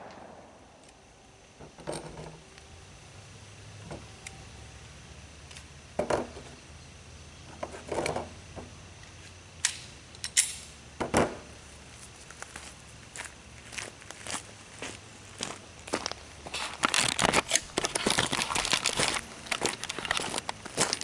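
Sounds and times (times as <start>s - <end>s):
footsteps on wood chips: 11.9s - 21.0s.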